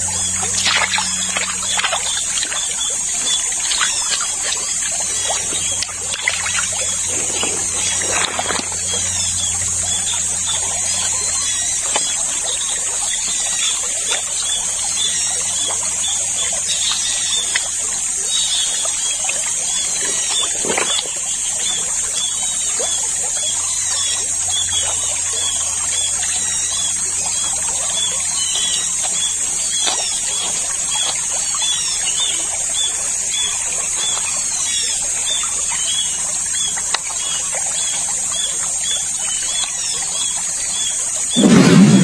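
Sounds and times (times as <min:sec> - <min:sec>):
stream trickling over rocks: 0:00.0 - 0:42.0
high-pitched drone: 0:41.4 - 0:42.0.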